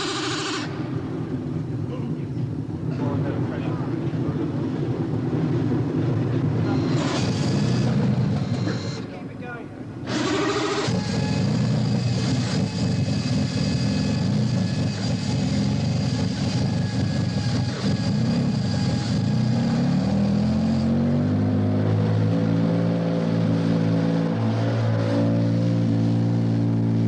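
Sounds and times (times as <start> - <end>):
racing car engine idling: 10.2 - 19.3.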